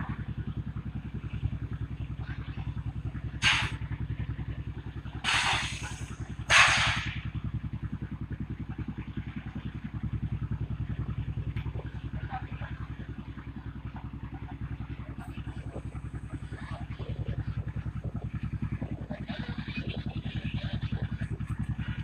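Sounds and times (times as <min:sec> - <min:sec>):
ship engine running: 0:00.0 - 0:22.0
short loud noisy bursts: 0:03.4 - 0:03.8, 0:05.2 - 0:07.2.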